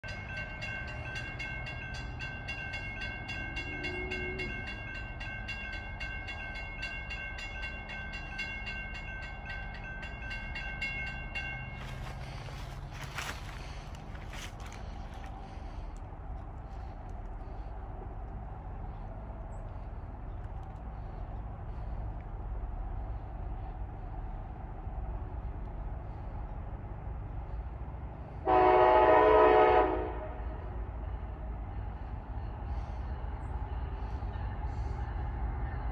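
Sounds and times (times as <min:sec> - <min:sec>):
crossing bell ringing: 0:00.0 - 0:14.8
train rumbling: 0:00.0 - 0:35.9
locomotive air horn chord: 0:28.4 - 0:30.7.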